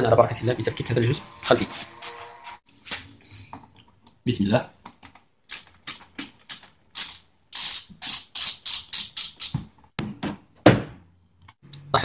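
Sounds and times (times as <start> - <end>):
screwdriver turning screws: 5.5 - 9.6.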